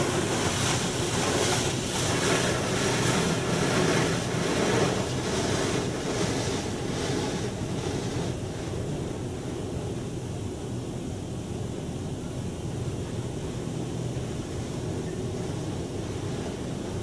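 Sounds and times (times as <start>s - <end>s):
water spray drumming on car: 0.0s - 9.1s.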